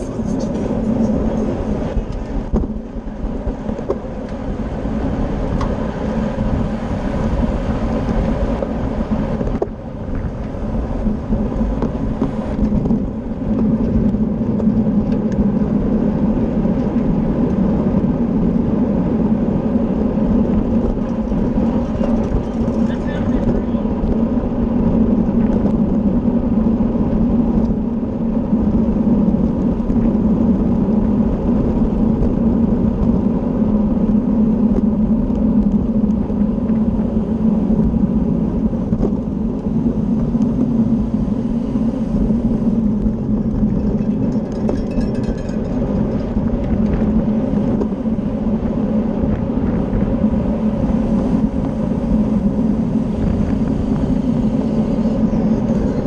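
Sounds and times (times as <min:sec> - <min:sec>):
bicycle tyre hum: 0:00.0 - 0:56.0
wind rush over microphone: 0:00.0 - 0:56.0.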